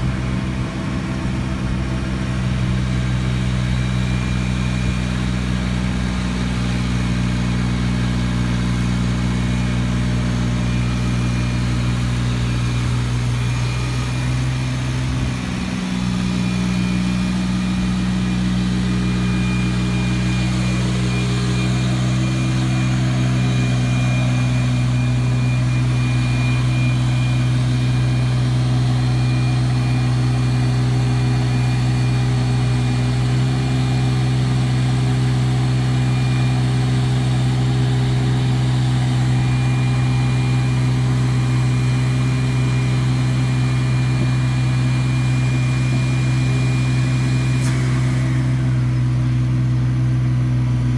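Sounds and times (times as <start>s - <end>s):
diesel engine running: 0.0s - 50.9s
high steady whine: 0.0s - 50.9s.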